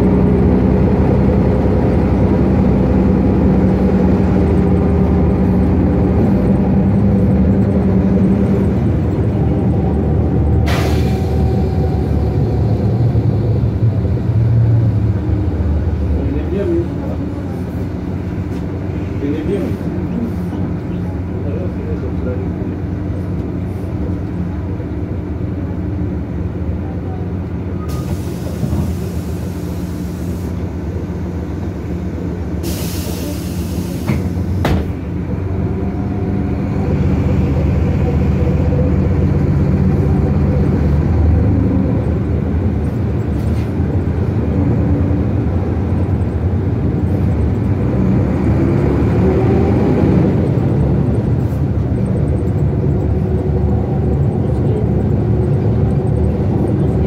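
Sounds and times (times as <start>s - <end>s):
bus diesel engine running: 0.0s - 57.0s
compressed air hisses: 32.6s - 34.3s.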